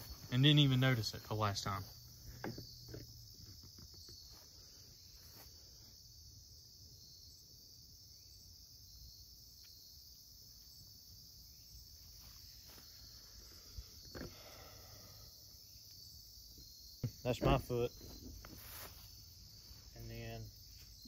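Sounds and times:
insects chirping: 0.0 - 21.0
soft ticks and scuffs: 18.3 - 19.2.

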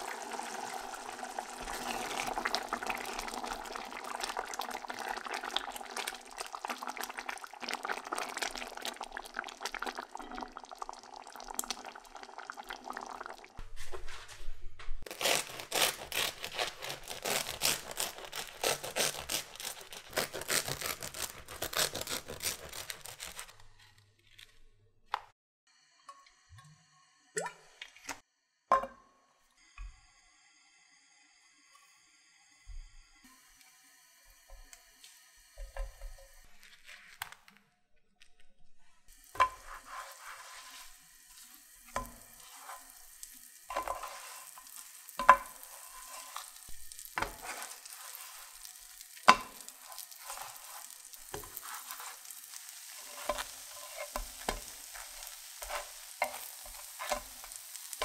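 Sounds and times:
soup bubbling in a pot: 0.0 - 13.6, 39.1 - 58.0
bread crust crackling as sliced: 15.1 - 24.5.

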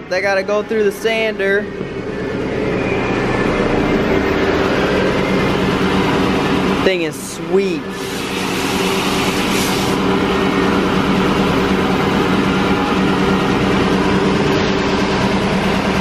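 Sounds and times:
metal sander running: 7.8 - 16.0.

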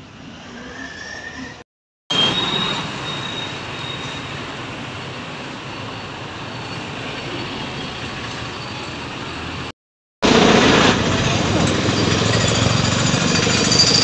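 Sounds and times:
road vehicle rumble and hiss: 2.5 - 13.5.

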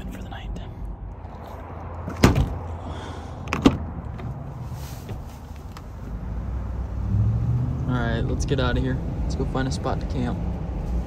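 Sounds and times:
truck doors slamming: 2.1 - 2.6.

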